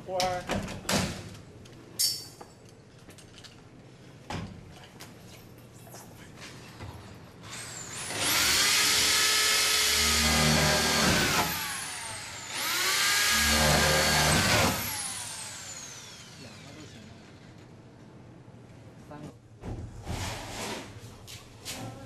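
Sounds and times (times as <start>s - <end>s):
electric drill whining: 7.5s - 17.6s.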